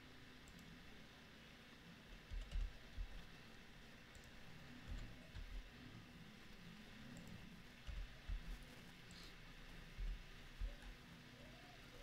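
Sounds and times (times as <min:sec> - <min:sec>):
mouse clicks: 0:00.4 - 0:00.8, 0:04.1 - 0:05.6
keyboard keystrokes: 0:02.3 - 0:03.2.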